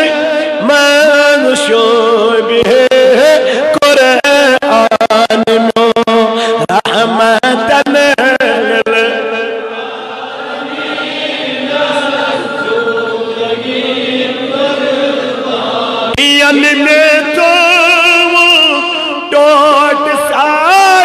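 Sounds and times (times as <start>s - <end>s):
man singing with vibrato: 0.0s - 21.0s
men chanting together: 9.1s - 16.2s.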